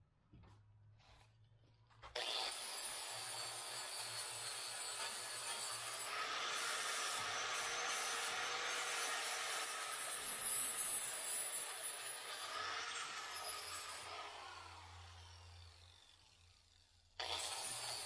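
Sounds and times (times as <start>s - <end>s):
angle grinder grinding steel: 2.2s - 15.7s, 17.2s - 18.0s.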